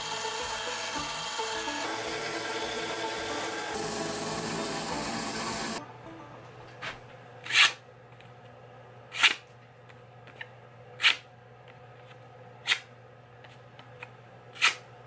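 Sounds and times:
knife blade slicing paper: 7.4 - 7.8, 9.1 - 9.4, 11.0 - 11.2, 14.6 - 14.8.

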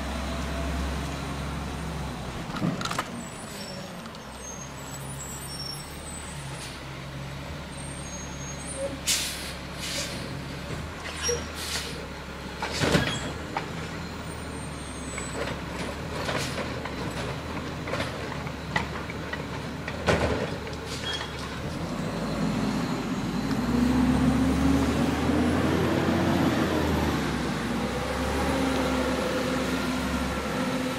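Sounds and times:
garbage truck hisses: 8.4 - 10.4, 11.2 - 12.1
garbage truck clanks: 15.1 - 22.0
truck engine revving: 21.6 - 30.9.

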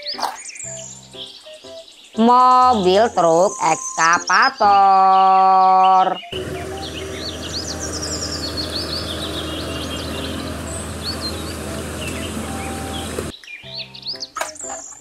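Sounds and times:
birds chirping: 0.0 - 15.0
excavator diesel engine running: 6.4 - 13.3.

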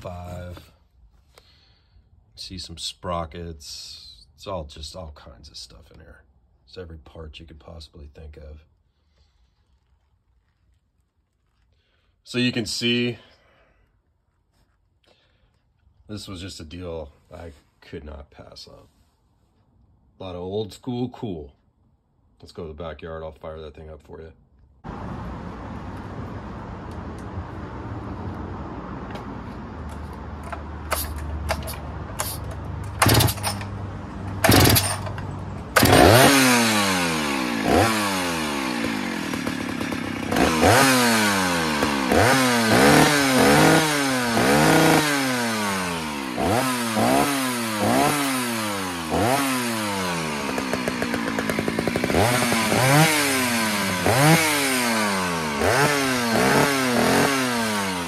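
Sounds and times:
chainsaw engine revving: 30.4 - 58.0
chainsaw pull-start: 30.4 - 58.0.

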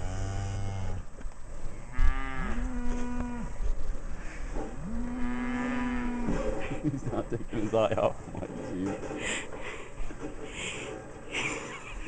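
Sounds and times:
cattle mooing: 0.0 - 1.0, 1.9 - 3.5, 4.7 - 6.6.

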